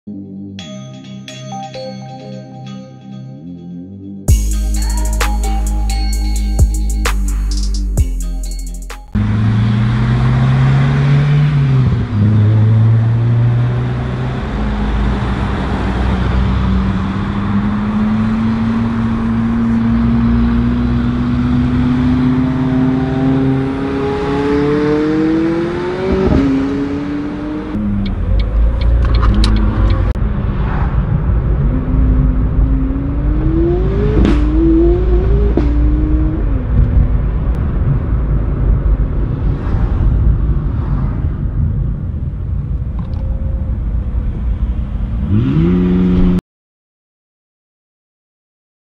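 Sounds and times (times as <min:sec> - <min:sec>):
car engine accelerating: 0:09.1 - 0:46.4.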